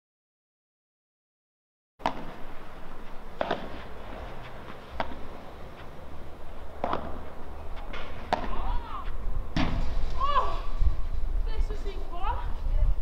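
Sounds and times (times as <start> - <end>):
padel ball struck by rackets: 2.0 - 2.4, 3.4 - 3.9, 5.0 - 5.3, 6.8 - 7.3, 7.9 - 8.7
ball rebounding off walls: 3.4 - 3.9, 6.7 - 8.8.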